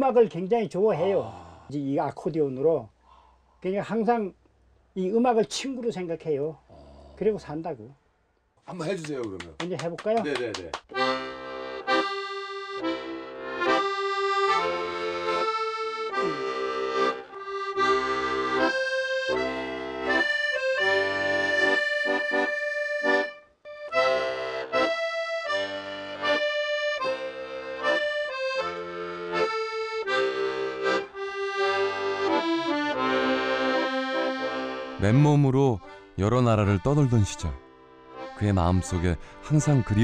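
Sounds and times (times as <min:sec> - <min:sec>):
piano accordion playing a tune: 0:10.9 - 0:40.0.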